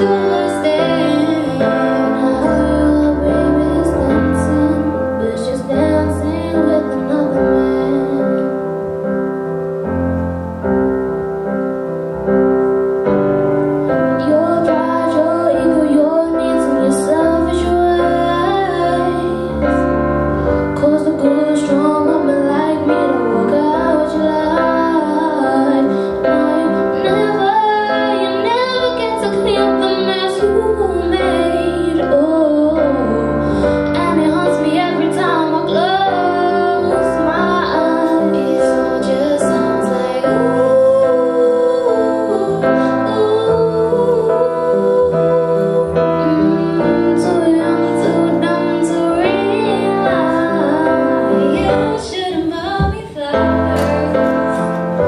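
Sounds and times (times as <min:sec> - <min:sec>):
girl singing slow pop song: 0:00.0 - 0:09.0, 0:13.8 - 0:55.0
piano accompaniment: 0:00.0 - 0:55.0.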